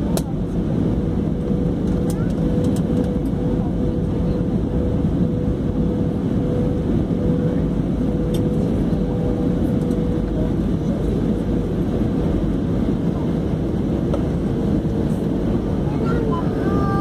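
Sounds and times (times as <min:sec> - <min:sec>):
airliner cabin engine noise: 0:00.0 - 0:17.0.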